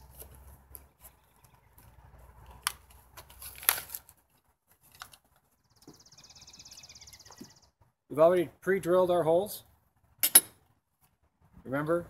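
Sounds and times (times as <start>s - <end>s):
package crinkling and rustling: 2.6s - 5.4s.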